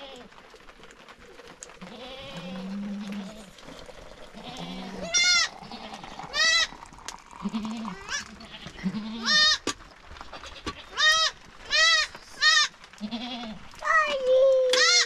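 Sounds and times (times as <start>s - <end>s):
goats bleating: 1.8s - 3.6s, 4.3s - 6.8s, 7.4s - 9.7s, 10.3s - 13.8s, 14.7s - 15.0s.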